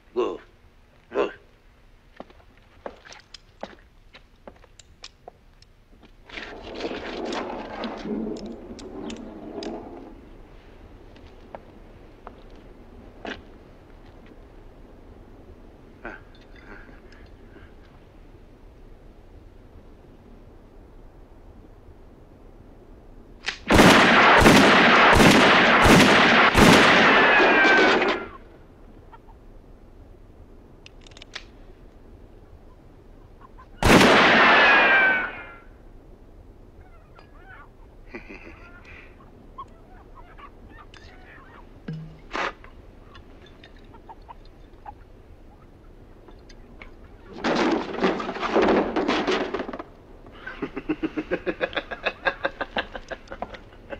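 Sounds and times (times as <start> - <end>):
chickens clucking and cackling: 28.2 - 29.5, 32.4 - 33.8, 36.8 - 41.8, 42.7 - 47.4.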